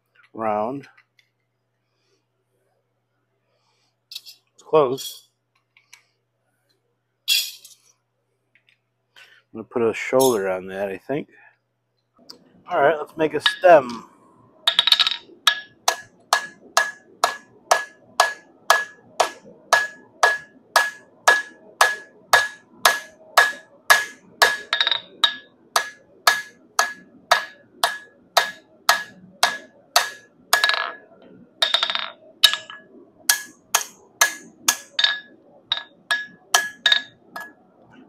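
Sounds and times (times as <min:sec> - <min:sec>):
hammer ringing on anvil: 0:15.5 - 0:31.0, 0:31.6 - 0:37.6.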